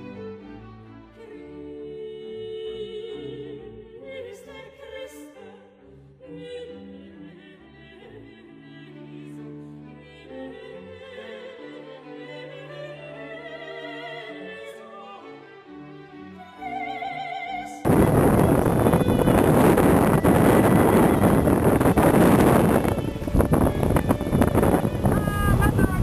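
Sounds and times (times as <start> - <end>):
operatic singing voice: 1.2 - 15.4
bowed strings: 14.8 - 26.0.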